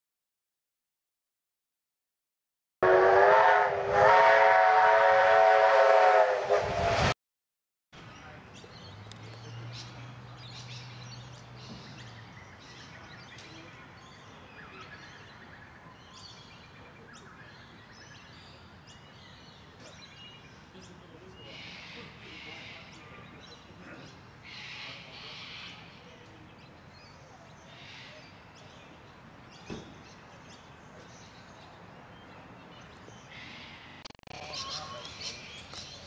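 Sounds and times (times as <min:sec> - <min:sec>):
steam whistle blast: 0:02.8 - 0:07.1
birds chirping: 0:08.0 - 0:36.0.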